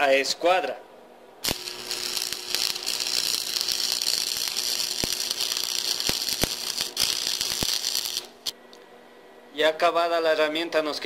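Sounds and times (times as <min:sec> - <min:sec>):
faint hum: 0:00.0 - 0:11.0
sharp welding pops: 0:01.4 - 0:08.6
welding arc crackling hiss: 0:01.4 - 0:08.6.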